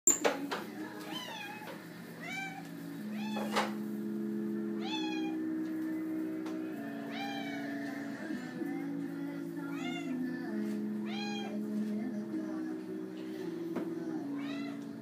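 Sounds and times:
low background music: 0:00.1 - 0:15.0
cat meowing: 0:01.1 - 0:03.8, 0:04.8 - 0:05.4, 0:07.0 - 0:07.8, 0:09.7 - 0:10.2, 0:11.0 - 0:11.6, 0:14.4 - 0:15.0.

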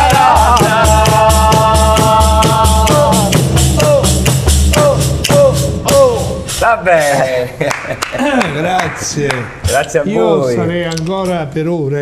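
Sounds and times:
man singing: 0:00.0 - 0:06.4.

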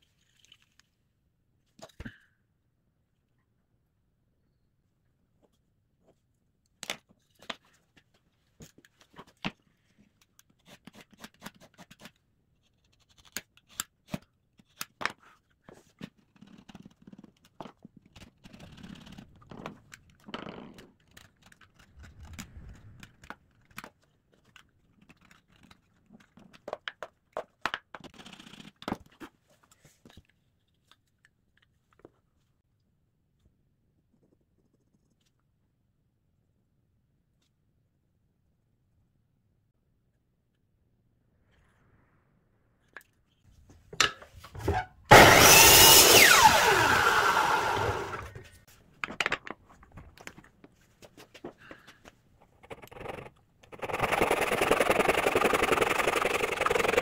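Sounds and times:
utility knife scraping plywood: 0:52.4 - 0:57.0.

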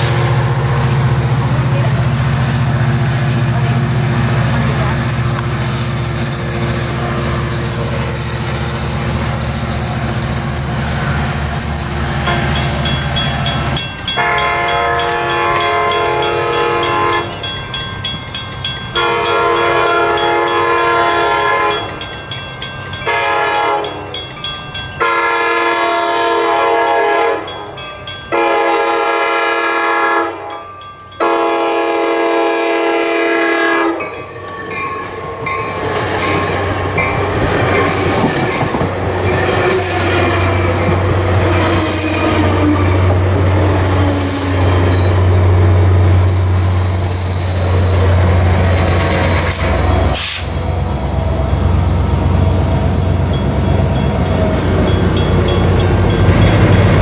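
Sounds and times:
crossing bell ringing: 0:00.0 - 0:32.2, 0:33.5 - 0:43.6, 0:44.5 - 0:57.0
diesel locomotive passing: 0:00.0 - 0:57.0
train horn blasts: 0:14.1 - 0:17.4, 0:19.0 - 0:22.0, 0:23.0 - 0:24.1, 0:25.0 - 0:27.6, 0:28.3 - 0:30.6, 0:31.2 - 0:34.1, 0:39.4 - 0:45.3.

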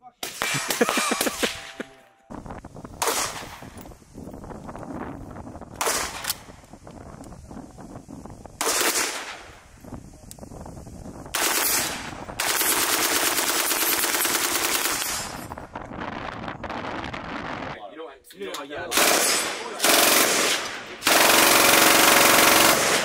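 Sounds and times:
rifle automatic gunfire bursts: 0:08.6 - 0:09.4, 0:11.3 - 0:15.4, 0:18.9 - 0:23.0.

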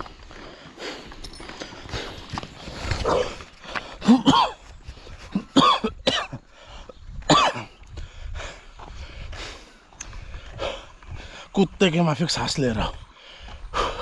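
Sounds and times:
man breathing heavily: 0:00.0 - 0:11.6, 0:12.9 - 0:14.0
man coughing: 0:04.0 - 0:06.4, 0:07.3 - 0:07.8.

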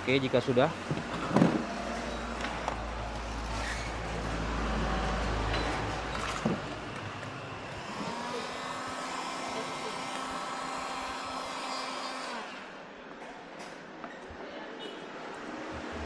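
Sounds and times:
heat gun motor whine: 0:07.8 - 0:12.7.

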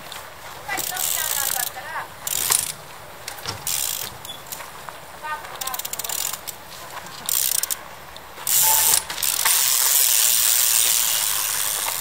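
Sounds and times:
bicycle freewheel hub ratcheting: 0:00.7 - 0:04.6, 0:05.6 - 0:06.6, 0:07.3 - 0:07.8, 0:08.4 - 0:12.0.

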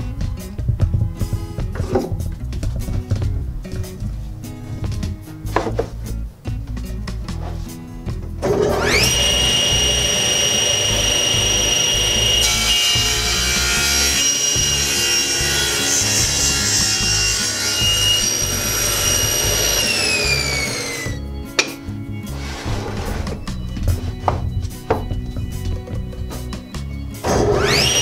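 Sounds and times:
saw blade cutting wood: 0:08.4 - 0:26.6, 0:27.2 - 0:28.0
table saw whining: 0:08.4 - 0:28.0.

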